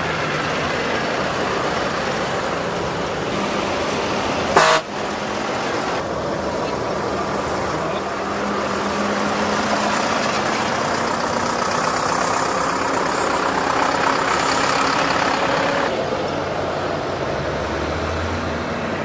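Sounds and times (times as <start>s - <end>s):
tractor engines humming: 0.0s - 19.0s.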